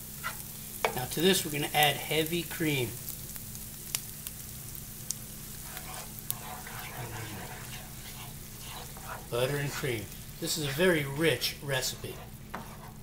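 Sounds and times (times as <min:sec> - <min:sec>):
cream sizzling in a hot pan: 0:00.0 - 0:13.0
low steady hum: 0:00.0 - 0:13.0.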